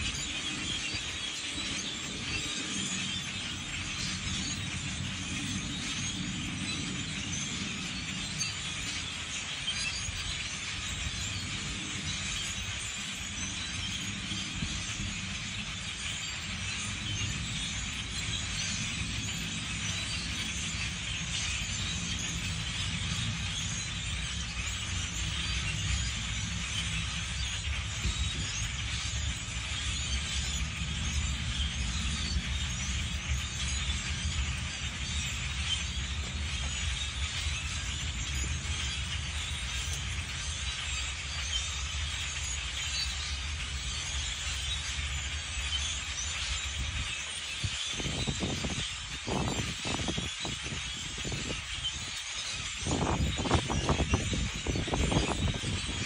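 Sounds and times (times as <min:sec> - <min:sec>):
flock of birds chattering: 0:00.0 - 0:56.0
steady low rumble: 0:10.2 - 0:42.7.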